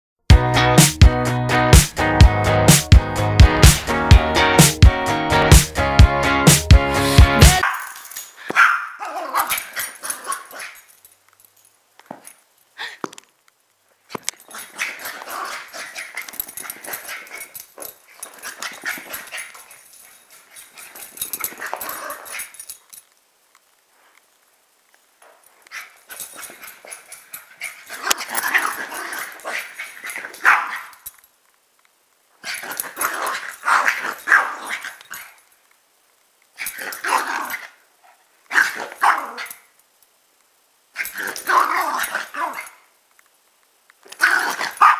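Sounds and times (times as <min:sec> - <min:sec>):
small dogs barking and yipping: 0:07.6 - 0:10.9, 0:14.4 - 0:19.8, 0:25.7 - 0:31.1, 0:32.4 - 0:35.4, 0:36.6 - 0:37.8, 0:38.5 - 0:39.7, 0:41.0 - 0:42.8, 0:44.1 - 0:44.9.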